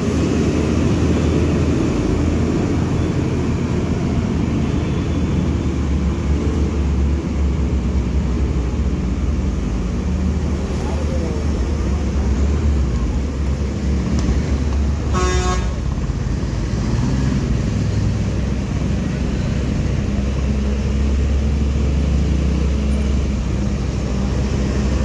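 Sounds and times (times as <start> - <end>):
vehicle engines rumbling: 0.0 - 25.0
car horn toot: 15.1 - 15.8.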